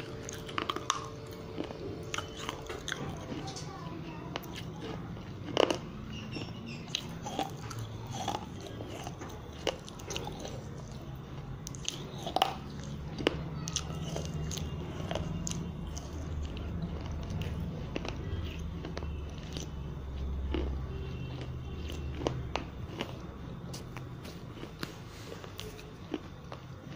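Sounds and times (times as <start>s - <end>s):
crunching clay pieces in mouth: 0.0s - 3.7s, 4.4s - 26.9s
steady low hum: 0.0s - 26.9s.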